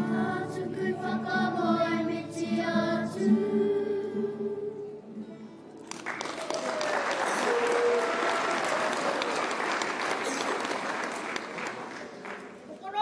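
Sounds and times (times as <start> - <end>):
audience applause: 5.8 - 12.8.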